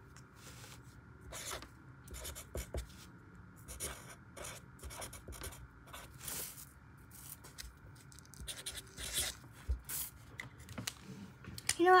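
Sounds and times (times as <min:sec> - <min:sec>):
marker scratching on paper: 0:01.3 - 0:02.9, 0:03.7 - 0:06.5, 0:08.4 - 0:09.4.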